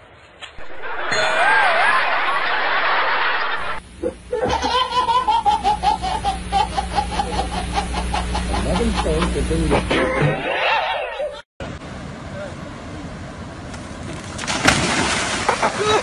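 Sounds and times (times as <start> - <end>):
loud wavering rushing noise: 0.0 - 3.9
baby laughing: 4.0 - 11.4.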